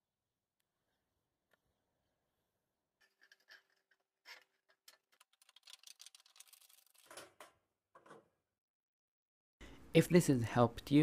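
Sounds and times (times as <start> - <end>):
sheet steel crinkling and clicking: 3.0 - 8.2.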